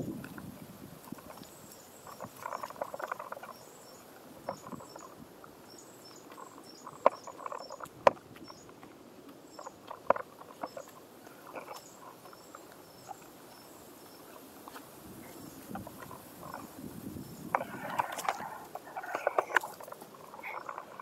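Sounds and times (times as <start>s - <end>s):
footsteps crunching on dirt trail: 14.0s - 19.0s.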